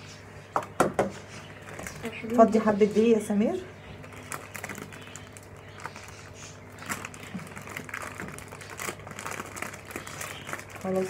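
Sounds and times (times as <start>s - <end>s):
plastic bag crinkling: 1.6s - 3.1s, 3.8s - 11.0s.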